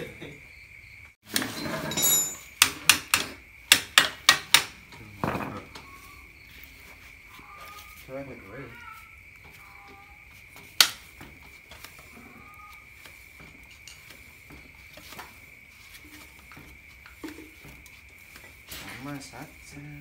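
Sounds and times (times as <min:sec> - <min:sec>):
hand tools clinking on metal: 0:01.3 - 0:06.0, 0:10.5 - 0:15.4.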